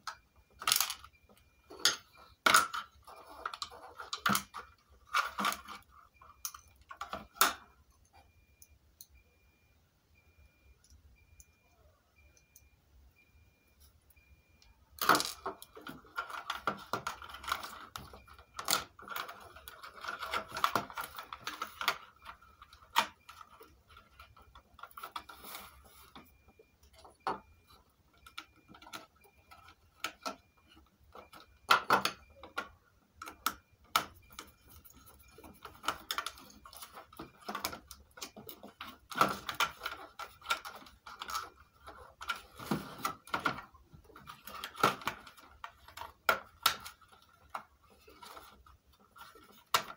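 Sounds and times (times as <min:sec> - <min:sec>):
hands handling plastic electronics: 0:00.0 - 0:08.3, 0:15.0 - 0:49.9.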